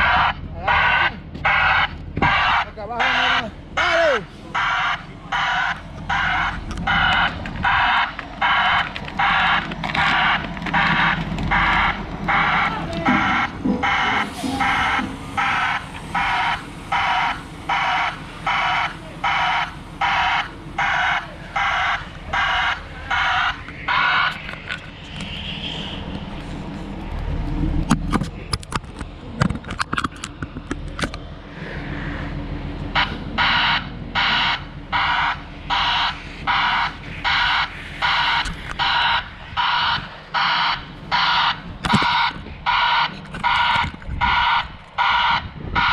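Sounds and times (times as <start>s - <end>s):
crane engine running: 0.0s - 45.9s
backup alarm beeping: 4.6s - 24.5s, 33.0s - 45.9s
knocks and clatters: 6.0s - 12.3s.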